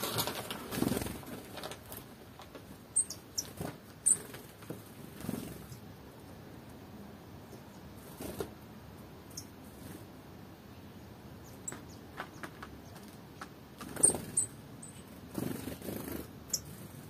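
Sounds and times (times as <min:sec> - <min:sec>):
bird wing flutters: 0:00.0 - 0:02.0
high bird chirps: 0:03.0 - 0:04.3, 0:09.3 - 0:09.6, 0:14.0 - 0:15.1.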